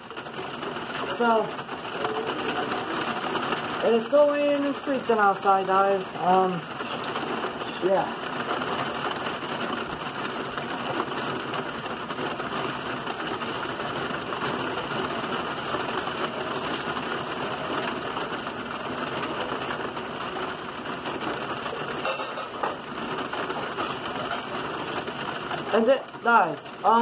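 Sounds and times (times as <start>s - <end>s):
heavy rain on concrete: 0.0s - 27.0s.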